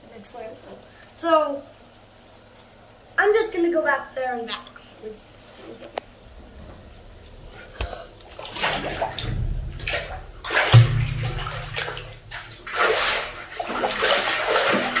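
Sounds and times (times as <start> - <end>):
water splashing in a steel tank: 6.2 - 15.0.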